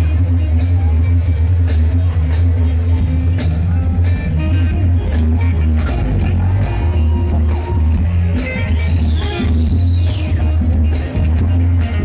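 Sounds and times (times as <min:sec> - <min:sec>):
electric bass line: 0:00.0 - 0:12.0
funk rock band playing: 0:00.0 - 0:12.0
drum beat: 0:02.6 - 0:12.0.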